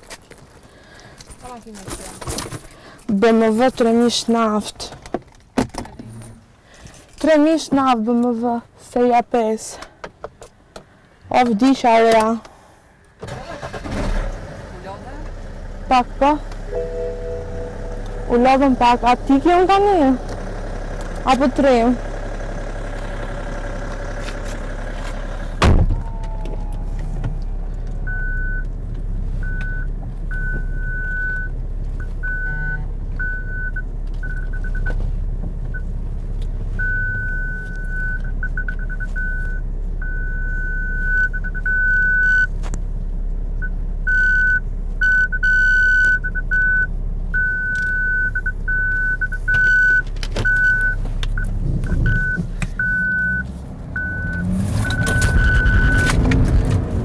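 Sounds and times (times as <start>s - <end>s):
steady low rumble: 15.3s - 45.2s, 50.1s - 57.0s
electronic beep: 16.7s - 18.6s, 44.1s - 56.1s
car door shutting: 25.6s - 27.4s, 54.2s - 57.0s.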